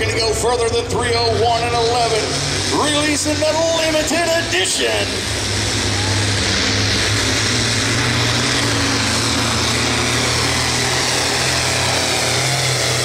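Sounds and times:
tractor diesel engine under heavy load: 0.0s - 13.0s.

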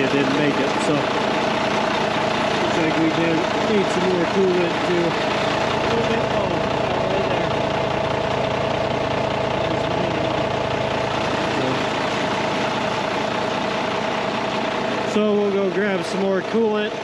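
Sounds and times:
diesel engine idling: 0.0s - 17.0s
steady whine: 0.0s - 17.0s.

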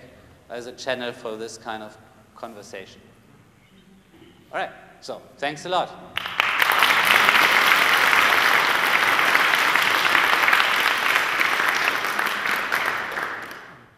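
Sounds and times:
audience applauding: 6.2s - 13.9s.

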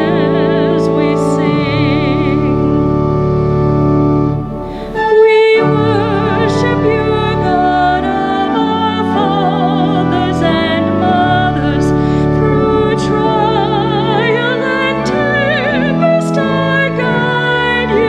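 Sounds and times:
woman singing with vibrato: 0.0s - 2.9s, 4.7s - 18.0s
keyboard sustained chords: 0.0s - 18.0s.

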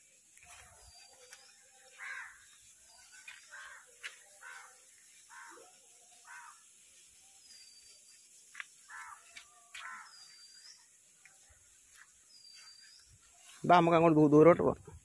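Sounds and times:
crows cawing: 2.0s - 2.5s, 3.4s - 5.6s, 6.2s - 6.7s, 8.8s - 10.2s.

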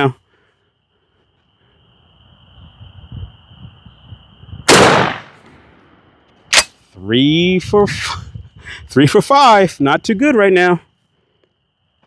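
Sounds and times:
shotgun blast: 4.7s - 5.4s.

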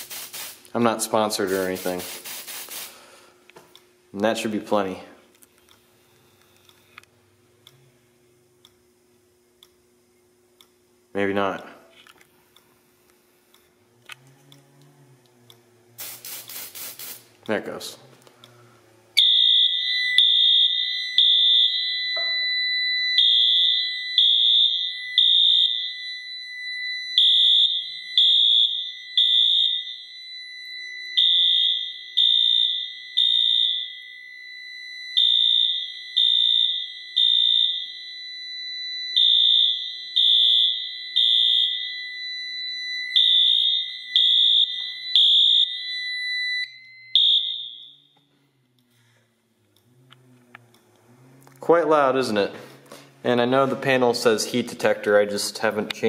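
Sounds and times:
fire alarm horn beeping: 18.5s - 48.6s
steady high tone: 18.6s - 32.2s.

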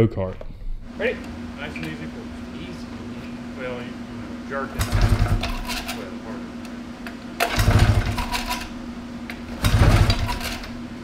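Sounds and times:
engine cranking rattling chug: 4.8s - 6.0s, 7.4s - 8.7s, 9.6s - 10.7s
recoil starter pulls: 4.8s - 6.1s, 7.4s - 8.7s, 9.6s - 10.8s.

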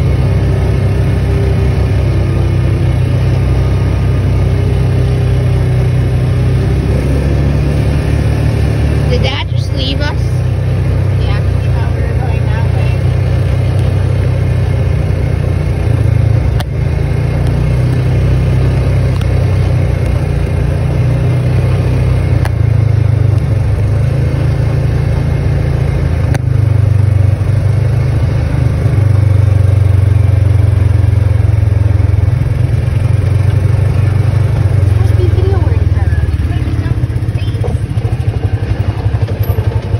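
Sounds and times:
vehicle engine droning: 0.0s - 39.9s
sharp clicks and rattles: 33.1s - 39.9s.

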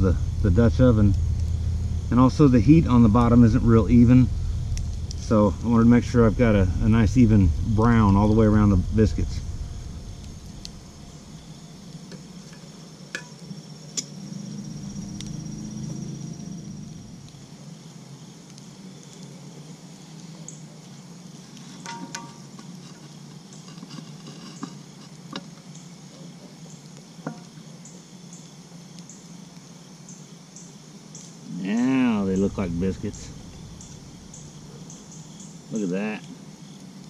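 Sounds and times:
low rumble: 0.0s - 12.0s, 14.2s - 17.4s, 32.2s - 34.7s
campfire crackling and popping: 0.0s - 37.0s
insects chirping: 0.0s - 37.0s.

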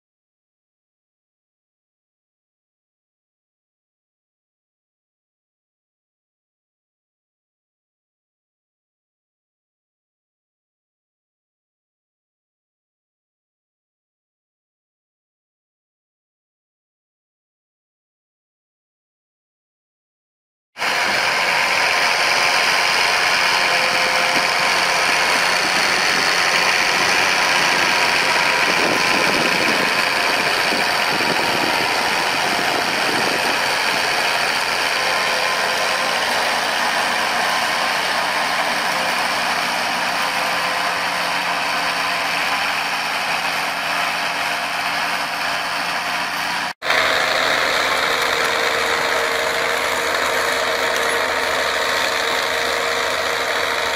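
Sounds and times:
tractor engine under load: 20.8s - 53.9s.

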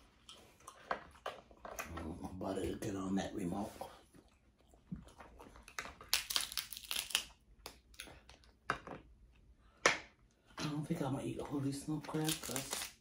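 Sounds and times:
crab shells cracking: 5.8s - 8.1s.

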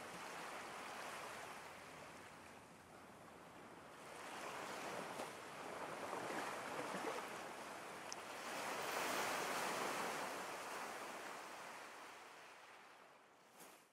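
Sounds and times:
ocean waves surf: 4.0s - 13.1s.

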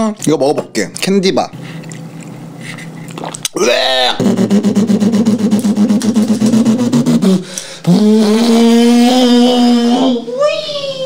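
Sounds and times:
man's pulsing warble: 3.6s - 10.3s.

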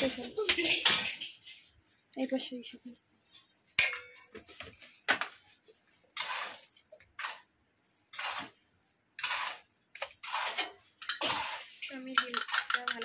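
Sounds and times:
utensil scraping dish: 6.1s - 7.5s, 8.1s - 8.6s, 9.2s - 13.0s.

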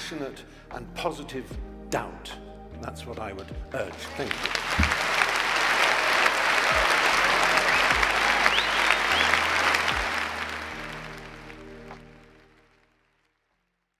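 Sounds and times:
audience applauding: 4.1s - 13.0s.

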